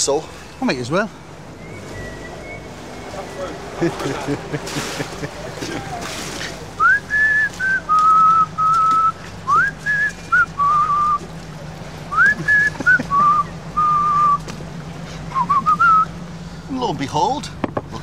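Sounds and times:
man whistling a tune: 1.6 - 3.6, 6.8 - 11.2, 12.1 - 14.4, 15.3 - 16.1.

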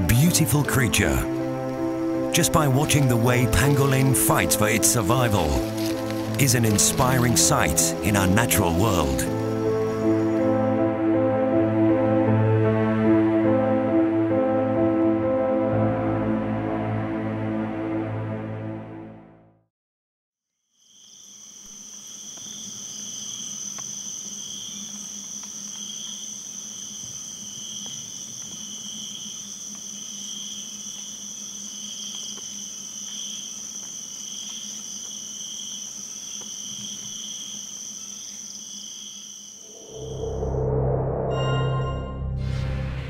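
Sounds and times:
insects trilling: 0.1 - 10.8, 20.7 - 40.3.

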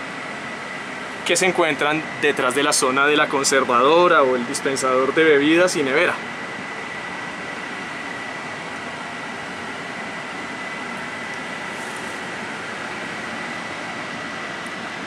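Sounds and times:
thin high whine: 0.0 - 15.0
bus cabin hiss: 11.4 - 12.9.

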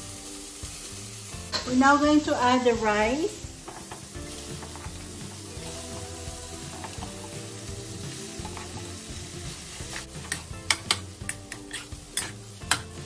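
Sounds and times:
rice sizzling in a wok: 0.0 - 13.0
metal spatula scraping a wok: 9.8 - 13.0.

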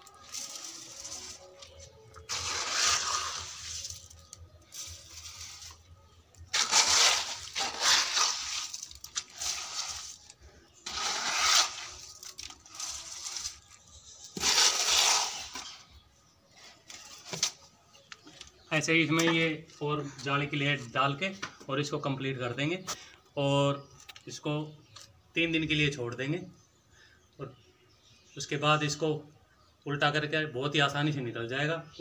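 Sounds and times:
wet concrete scraping and sloshing: 2.1 - 5.8, 6.5 - 15.8.

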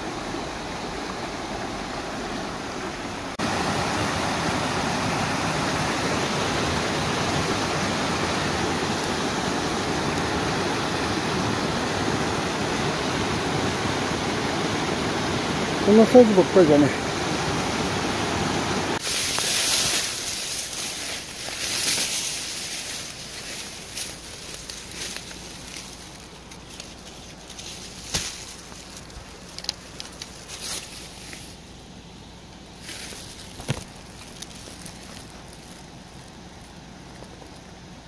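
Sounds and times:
stream rushing: 0.0 - 38.0
grass rustling and snapping: 19.0 - 31.7, 32.5 - 38.0
footsteps in vegetation: 19.0 - 31.8, 32.6 - 37.8.

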